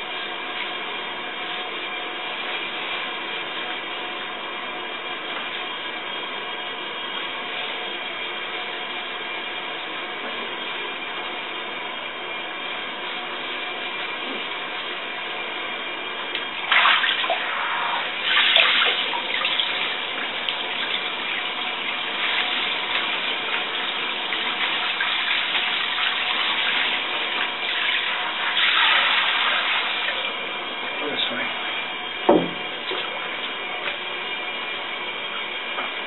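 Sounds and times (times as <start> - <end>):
shower water splashing: 16.5 - 30.6.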